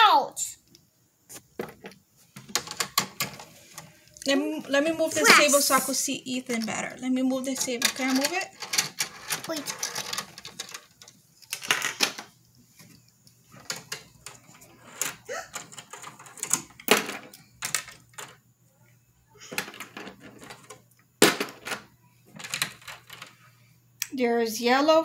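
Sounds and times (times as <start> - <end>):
plastic toy clicks and knocks: 2.4 - 3.5, 7.6 - 12.3.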